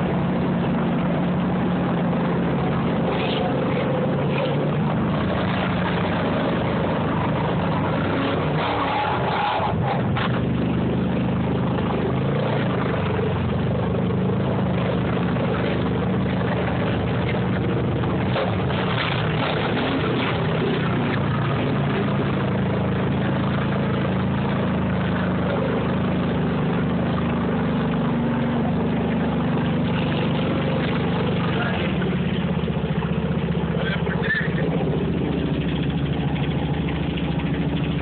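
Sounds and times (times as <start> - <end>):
off-road vehicle engine running: 0.0 - 38.0.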